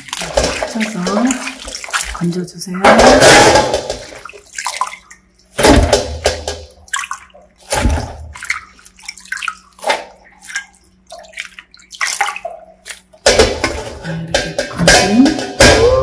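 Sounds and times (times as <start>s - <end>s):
water trickling: 0.0s - 5.6s, 6.5s - 13.3s
water splashing: 0.0s - 16.0s.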